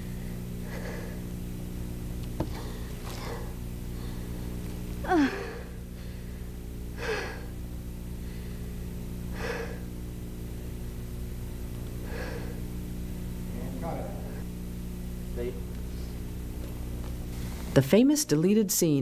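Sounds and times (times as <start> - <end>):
steady low hum: 0.0 - 19.0
woman sobbing and gasping: 5.0 - 5.9.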